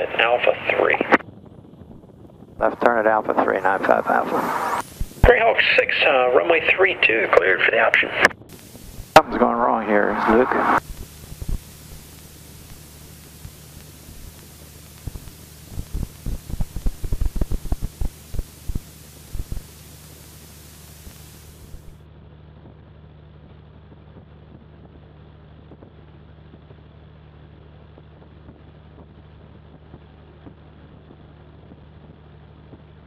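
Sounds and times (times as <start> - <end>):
hiss: 3.9 - 5.3, 10.1 - 21.9.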